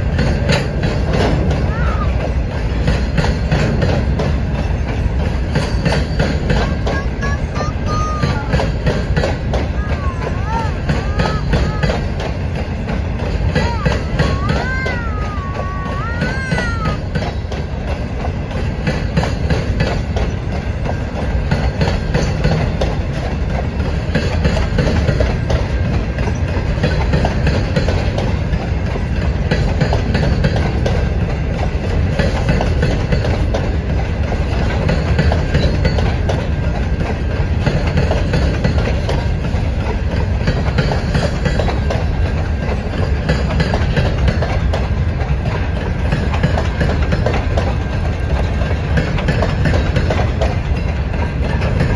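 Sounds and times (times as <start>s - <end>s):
freight train rumbling past: 0.0s - 51.9s
wheel and rail-joint clicks: 0.0s - 51.9s.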